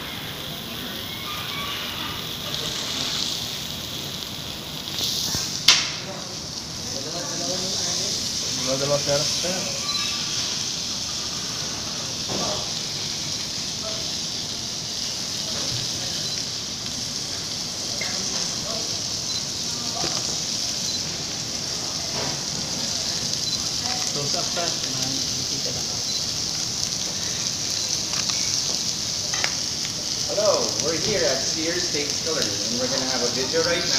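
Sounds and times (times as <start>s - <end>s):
beef sizzling on hot stone: 0.0s - 33.9s.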